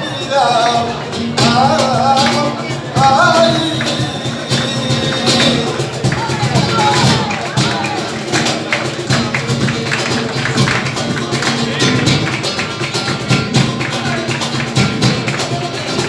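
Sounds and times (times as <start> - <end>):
cajon beats: 0.0 - 16.0
flamenco guitar playing: 0.0 - 16.0
rhythmic hand claps: 0.0 - 16.0.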